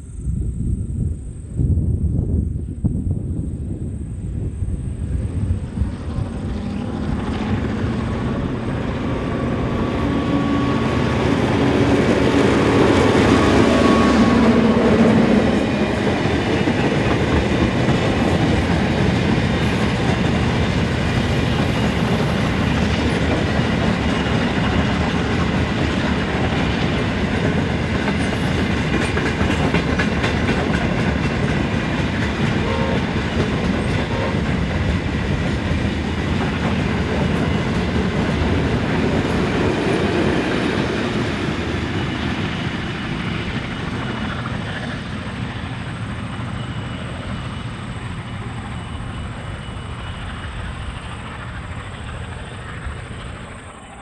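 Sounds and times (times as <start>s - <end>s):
diesel locomotive engines: 0.0s - 54.0s
wheels clicking over rail joints: 11.3s - 54.0s.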